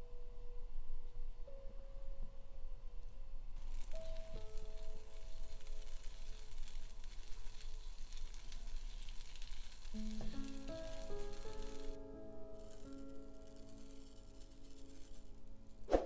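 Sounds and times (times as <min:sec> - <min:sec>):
butter sizzling in a frying pan: 0:03.6 - 0:12.0, 0:12.6 - 0:15.8.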